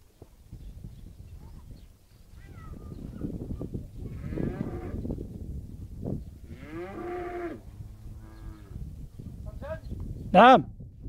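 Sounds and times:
cattle mooing: 0:06.5 - 0:07.6.

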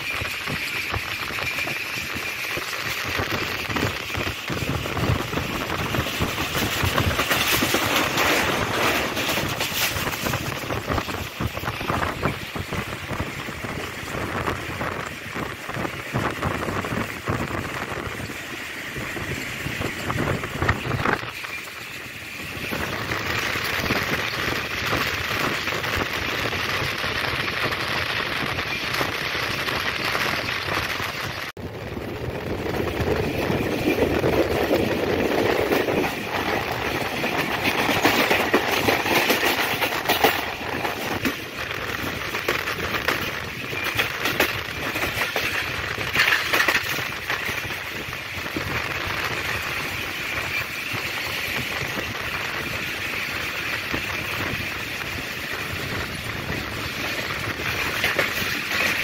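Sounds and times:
train wind and wheel noise: 0:00.0 - 0:59.0
small rattles and clicks: 0:34.6 - 0:59.0.

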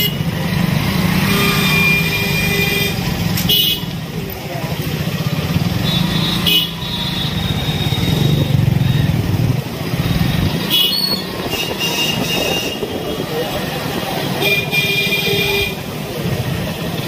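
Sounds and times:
street traffic: 0:00.0 - 0:17.0
motorbike engine running: 0:04.9 - 0:11.2.

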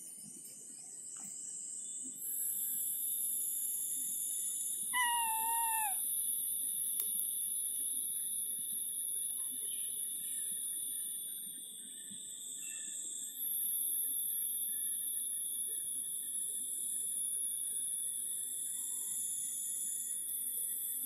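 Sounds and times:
cat meowing: 0:05.0 - 0:06.0
faint click: 0:07.0 - 0:07.3.

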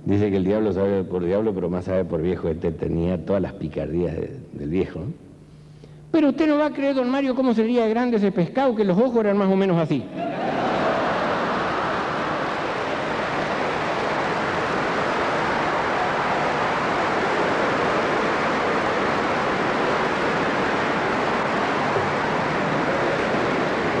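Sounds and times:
audience applauding: 0:10.2 - 0:24.0.

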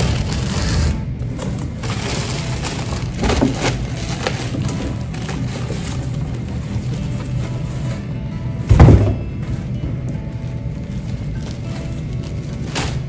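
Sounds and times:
cardboard rubbing: 0:00.0 - 0:08.0
plastic wrapping crinkling: 0:00.0 - 0:08.1, 0:09.4 - 0:13.0
background music: 0:00.0 - 0:13.0.

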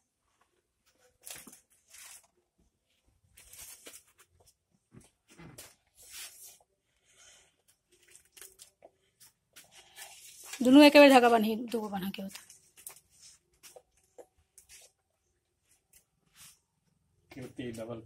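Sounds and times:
faint rustling and scraping: 0:00.2 - 0:18.0.

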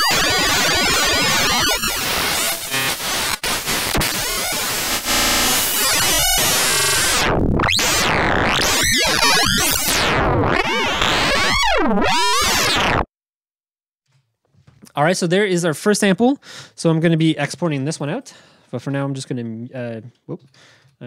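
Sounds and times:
synth glitch buzzing and stuttering: 0:00.0 - 0:13.1.

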